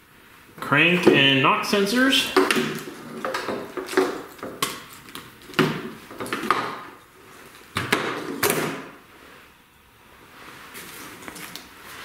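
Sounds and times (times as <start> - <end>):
cables clattering on metal: 1.9 - 8.6.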